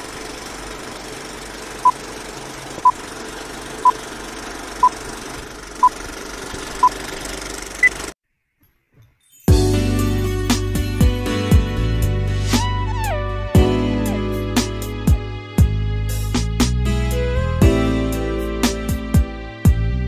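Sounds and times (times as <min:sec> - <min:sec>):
film projector whirring and rattling: 0:00.0 - 0:08.2.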